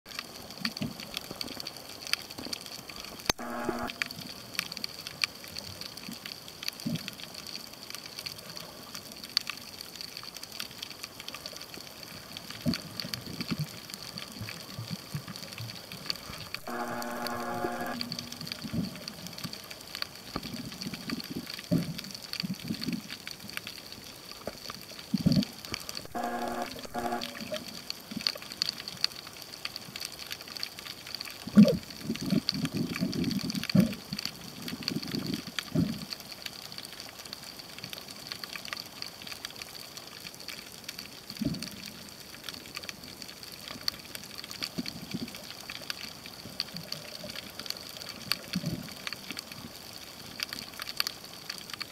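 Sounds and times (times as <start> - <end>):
water sloshing and gurgling underwater: 0.1 - 51.9
short pitched hum: 16.5 - 19.2, 26.1 - 27.7
faint high tone: 16.6 - 18.9, 26.1 - 27.7.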